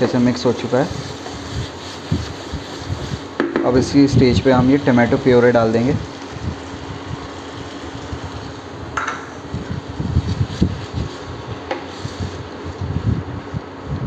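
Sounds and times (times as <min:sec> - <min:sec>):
steady background whir: 0:00.0 - 0:14.0
spatula stirring and knocking in pan: 0:01.0 - 0:04.1, 0:10.2 - 0:12.1.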